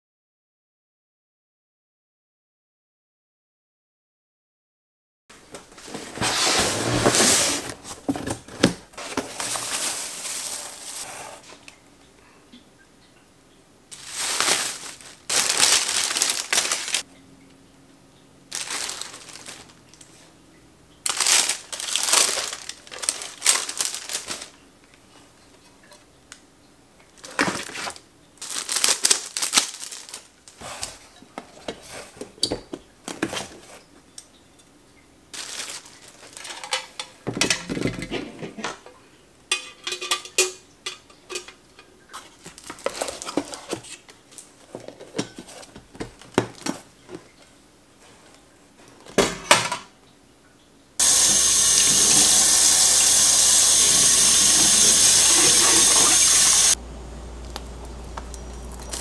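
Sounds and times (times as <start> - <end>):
cardboard flaps rustling: 5.4 - 11.6, 13.9 - 17.0, 21.1 - 24.5, 27.2 - 33.8, 35.4 - 36.5
plastic wrapping crinkling: 5.5 - 11.8, 13.9 - 17.1, 18.5 - 20.3, 21.0 - 24.6, 27.1 - 33.8, 35.3 - 38.0, 42.1 - 47.4, 57.4 - 59.0
trays clattering: 35.4 - 38.9.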